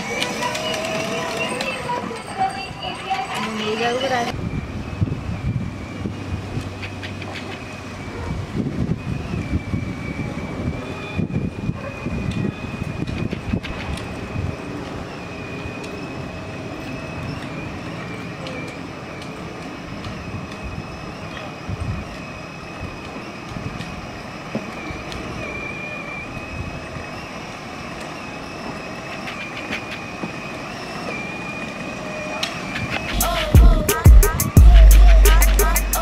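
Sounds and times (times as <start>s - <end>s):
electric motor whine: 0.0s - 2.2s
tyres rumbling on road: 0.0s - 36.0s
car engine: 31.1s - 36.0s.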